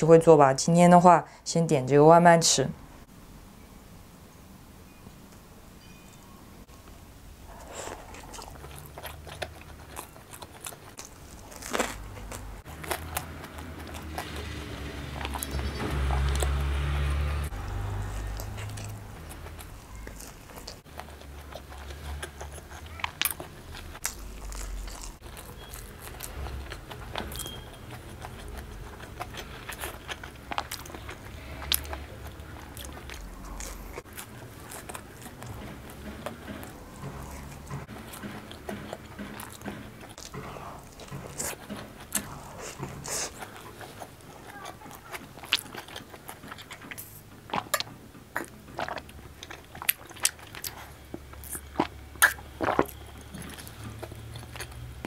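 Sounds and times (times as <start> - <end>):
chewing crunchy food: 7.5 - 55.0.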